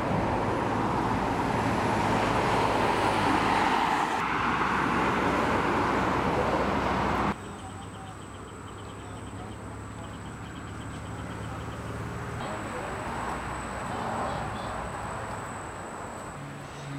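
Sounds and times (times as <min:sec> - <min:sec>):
highway traffic rushing by: 0:00.0 - 0:16.9
faint chirping: 0:07.3 - 0:16.9.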